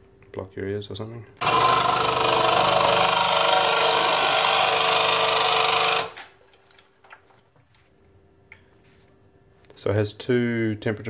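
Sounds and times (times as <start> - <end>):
faint hum: 0.0 - 1.4, 6.2 - 11.0
espresso machine pump running: 1.4 - 6.3.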